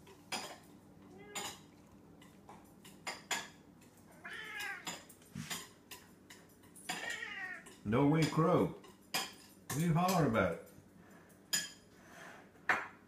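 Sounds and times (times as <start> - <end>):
cat meowing: 1.1 - 1.7, 4.2 - 5.1, 6.9 - 7.8.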